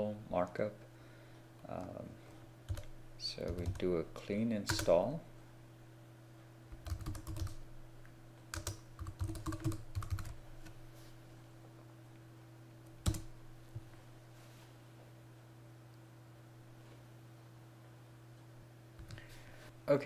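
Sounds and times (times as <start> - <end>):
faint steady hum: 0.0 - 20.0
typing on computer keyboard: 2.7 - 3.8, 4.7 - 4.9, 6.8 - 7.6, 8.5 - 10.4, 13.0 - 13.3.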